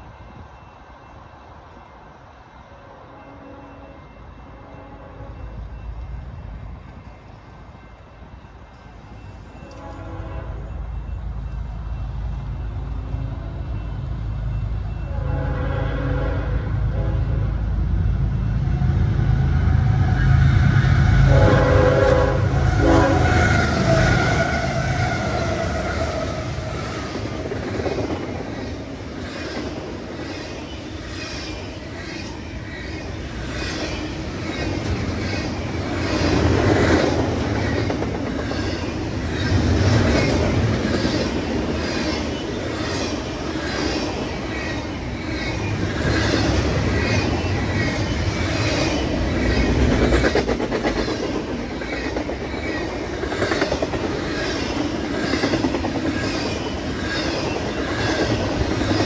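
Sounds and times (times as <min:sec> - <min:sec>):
heavy low train rumble: 0:00.0 - 0:59.0
train horn blast: 0:09.6 - 0:10.8, 0:15.0 - 0:17.6, 0:20.8 - 0:24.2.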